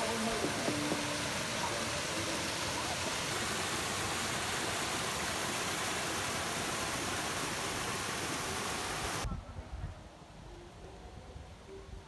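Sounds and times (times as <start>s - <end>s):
water rushing: 0.0s - 9.3s.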